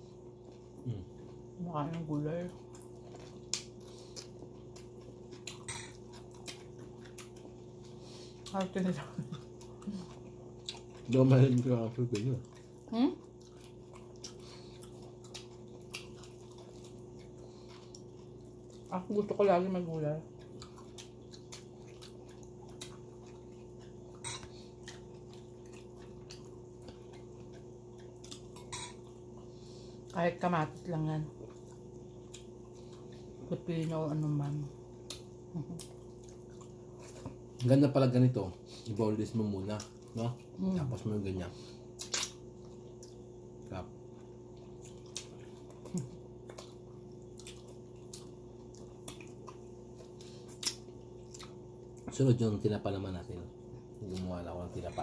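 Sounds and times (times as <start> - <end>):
steady low hum: 0.0 - 55.0
wet chewing smacks: 2.6 - 18.9, 20.3 - 30.2, 35.0 - 37.7, 41.9 - 43.3, 44.2 - 52.1.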